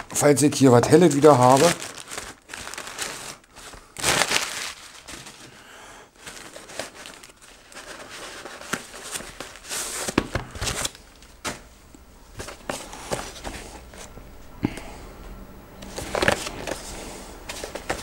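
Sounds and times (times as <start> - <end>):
plastic packaging crinkling: 0.0 - 5.6, 6.2 - 11.6, 15.8 - 18.0.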